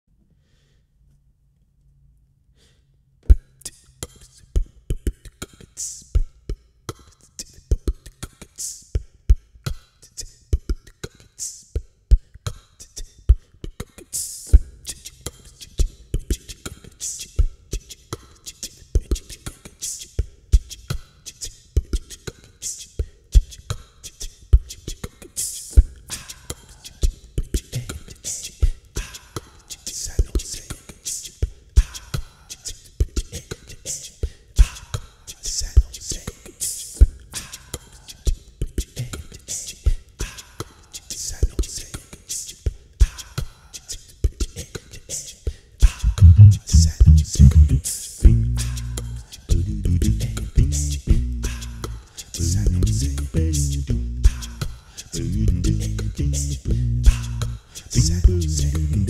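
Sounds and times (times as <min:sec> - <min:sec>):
person beatboxing: 0:12.5 - 0:38.2, 0:38.8 - 0:59.0.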